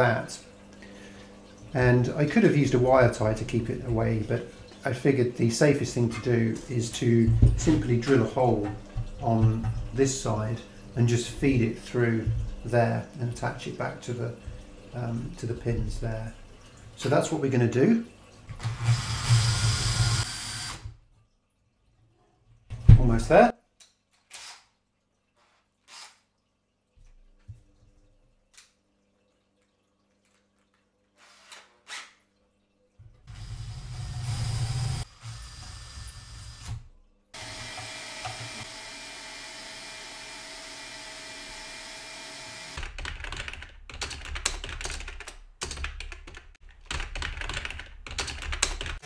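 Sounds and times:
cordless drill boring: 0:18.6 - 0:20.9, 0:25.9 - 0:26.2, 0:37.4 - 0:42.9
typing on computer keyboard: 0:42.8 - 0:49.0.

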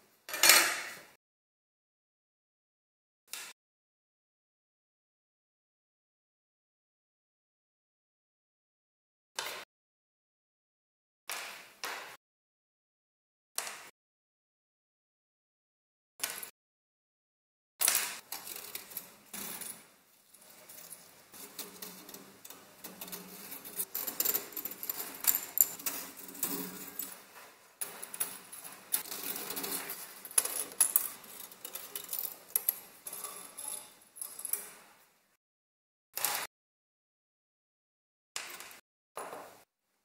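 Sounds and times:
metal parts handled on wooden bench: 0:00.3 - 0:01.1, 0:17.8 - 0:34.9
small metal parts clinking: 0:17.8 - 0:34.8
screwdriver working at screws: 0:20.4 - 0:34.4.

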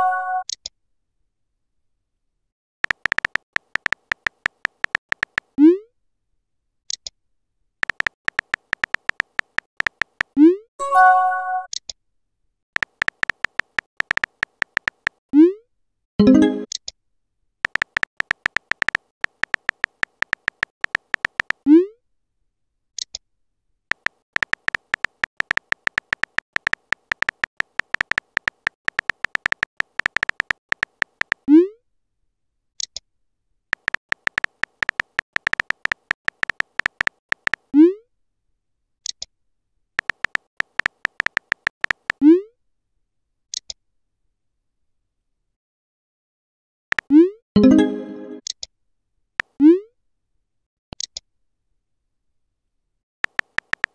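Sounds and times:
keyboard tap clicks: 0:02.8 - 0:05.5, 0:07.8 - 0:10.4, 0:12.8 - 0:15.2, 0:17.6 - 0:21.6, 0:23.9 - 0:31.4, 0:33.8 - 0:37.6, 0:40.0 - 0:42.2, 0:53.2 - 0:53.9.

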